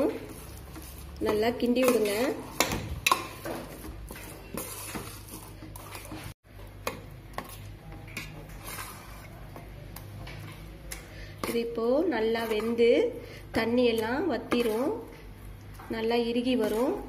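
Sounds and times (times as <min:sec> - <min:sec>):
metal spoon scraping a metal pan: 0:00.0 - 0:06.4, 0:07.4 - 0:09.4, 0:11.4 - 0:15.2.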